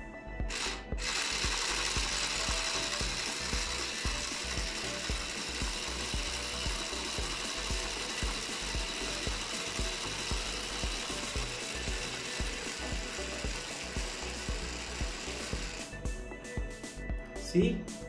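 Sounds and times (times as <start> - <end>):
small motor whirring: 0.5 - 16.0.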